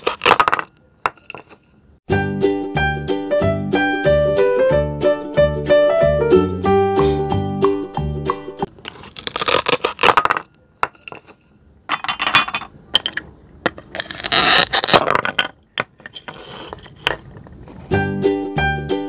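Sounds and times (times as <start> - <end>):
hook-and-loop strips tearing: 0.0 - 0.4, 8.9 - 10.2, 13.9 - 15.0.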